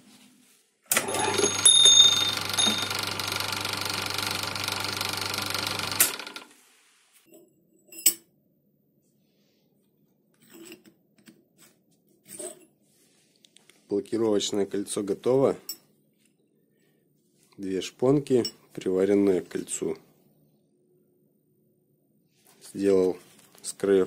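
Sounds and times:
lathe motor and gear hum: 0.9 - 6.5
high ringing tones: 1.0 - 3.5.

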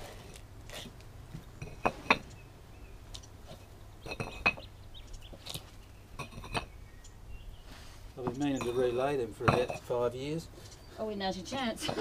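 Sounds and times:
paving bricks clinking and knocking: 0.0 - 2.4, 3.1 - 6.7, 8.2 - 10.7.

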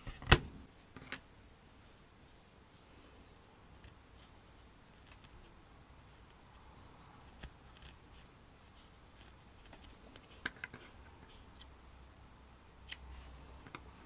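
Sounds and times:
felting needle scratchy ticks: 7.2 - 8.3.

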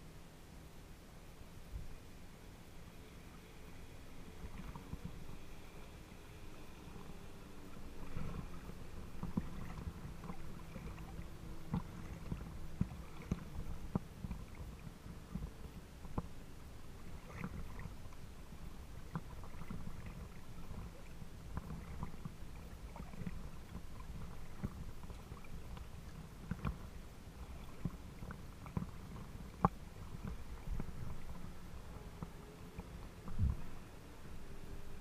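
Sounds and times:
water lapping against boat hull: 1.7 - 35.0
small knocks and ticks: 9.2 - 16.3.

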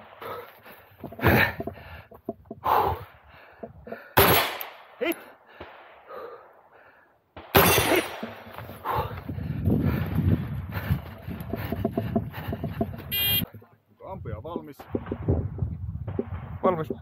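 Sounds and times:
person breathing hard: 0.1 - 4.2, 5.3 - 7.2, 8.5 - 13.1
gunshots: 4.2 - 6.1, 7.4 - 8.6.

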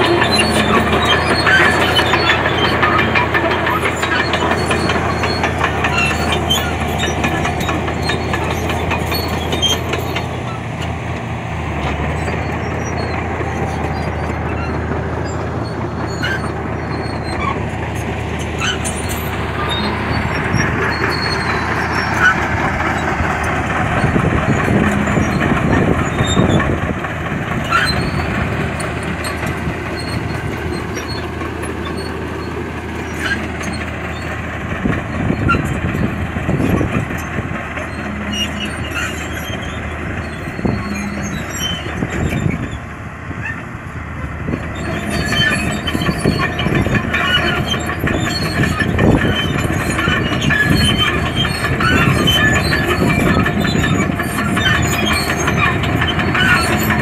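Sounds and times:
diesel engine under load: 0.0 - 57.0
steel tracks clanking: 0.0 - 57.0.

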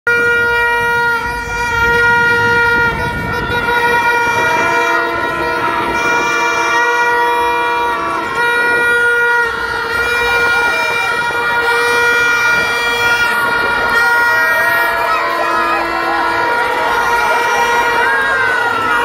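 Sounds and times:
crowd cheering and shouting: 0.1 - 19.0
horns blowing: 0.1 - 19.0.

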